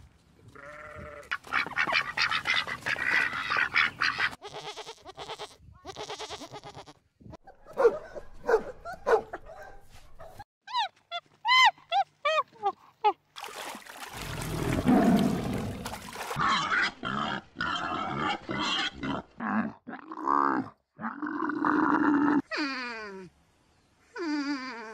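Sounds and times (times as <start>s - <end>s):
goat bleating: 0.6s - 1.4s, 4.4s - 7.0s.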